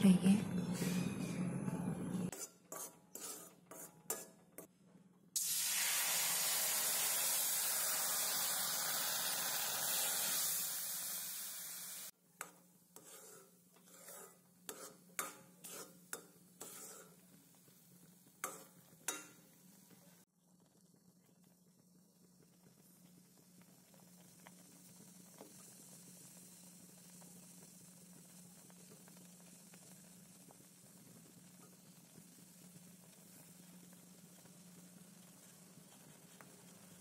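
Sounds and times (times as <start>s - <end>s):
metal spoon scraping metal pan: 2.3s - 4.7s, 12.4s - 17.2s, 18.4s - 19.4s
water sizzling in hot pan: 5.4s - 12.2s, 13.0s - 20.3s, 21.4s - 37.0s.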